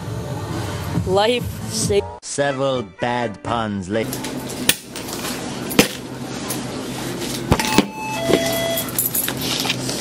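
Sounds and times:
short beeps: 0:07.6 - 0:09.0.

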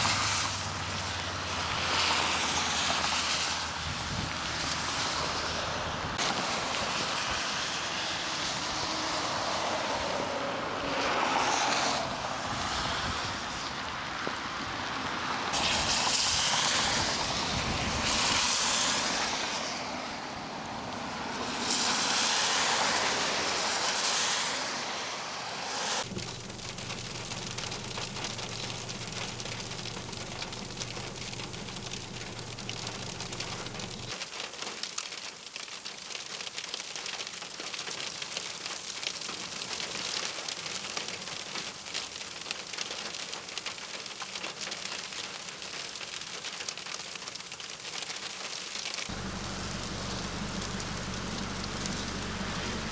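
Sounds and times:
freezing rain patter: 0:00.0 - 0:52.9
vehicle tyres hissing on wet road: 0:00.0 - 0:52.9
low steady hum: 0:26.1 - 0:34.1, 0:49.1 - 0:52.9.

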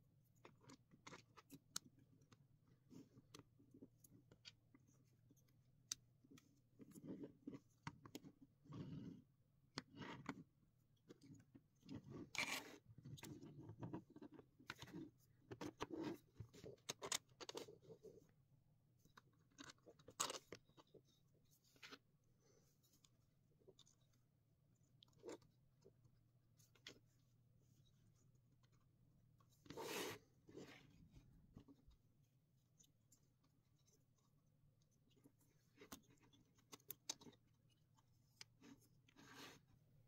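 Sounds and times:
plastic scraping on plastic: 0:11.8 - 0:18.2.

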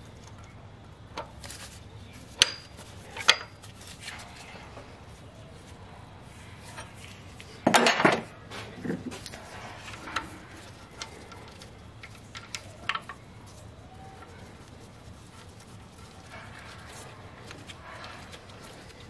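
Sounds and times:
metal parts clinking and rattling: 0:06.8 - 0:13.2.

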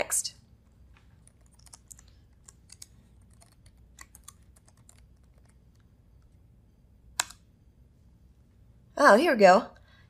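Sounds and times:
laptop keyboard typing: 0:01.2 - 0:05.9.

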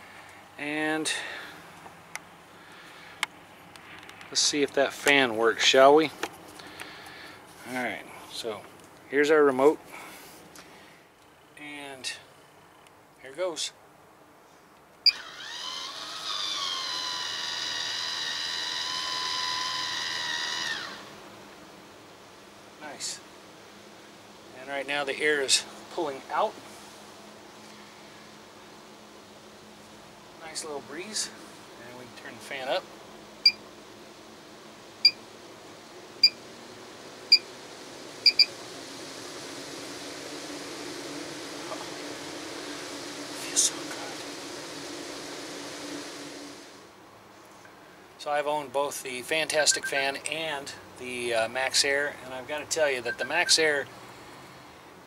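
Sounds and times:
vent fan rushing air: 0:00.0 - 0:55.0
electric motor whining: 0:15.1 - 0:21.1
short beep: 0:38.3 - 0:38.5, 0:53.0 - 0:53.6.

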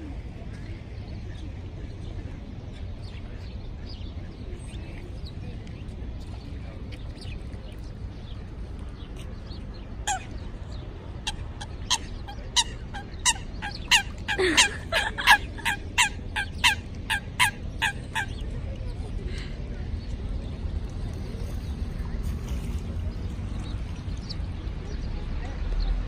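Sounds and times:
steady low background noise: 0:00.0 - 0:26.0
water bird calling: 0:10.0 - 0:19.0.

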